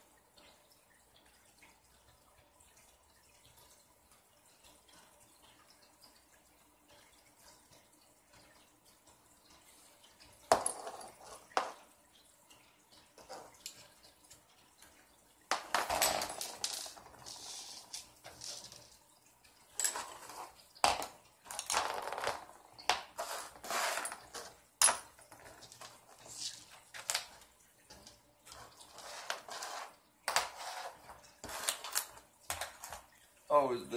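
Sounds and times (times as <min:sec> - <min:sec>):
small parts and tools clinking: 0:10.5 - 0:11.8, 0:15.5 - 0:19.0, 0:19.7 - 0:33.1.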